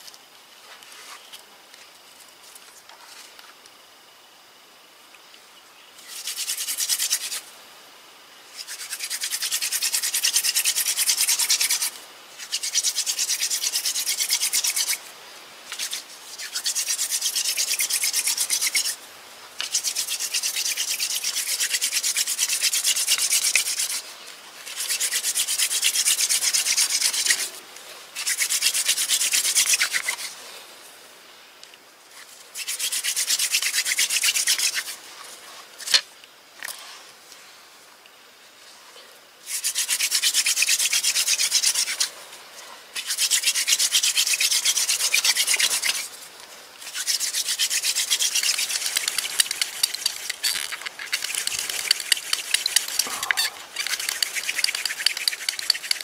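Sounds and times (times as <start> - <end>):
wooden spindle grinding in hearth: 46.9 - 56.0.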